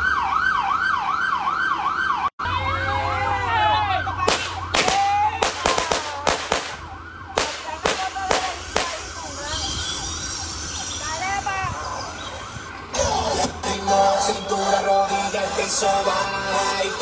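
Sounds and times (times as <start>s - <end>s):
vehicle siren wailing: 0.0s - 17.0s
rapid sharp bangs: 4.3s - 6.8s, 7.4s - 9.2s.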